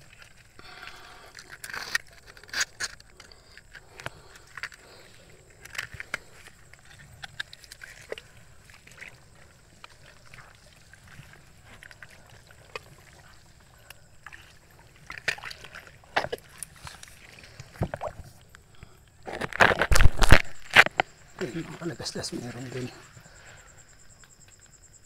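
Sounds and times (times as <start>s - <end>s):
sloshing through mud and water: 4.2s - 18.5s.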